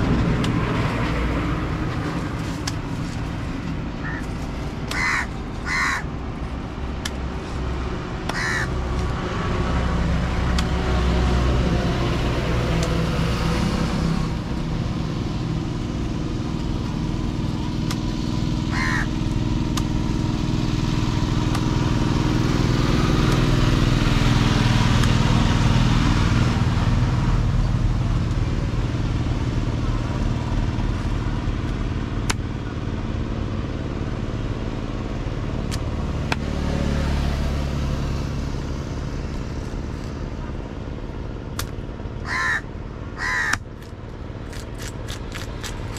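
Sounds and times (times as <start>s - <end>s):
vehicle engine running: 0.0s - 45.9s
crow cawing: 4.0s - 4.3s, 4.9s - 6.1s, 8.3s - 8.8s, 18.7s - 19.2s, 42.2s - 43.6s.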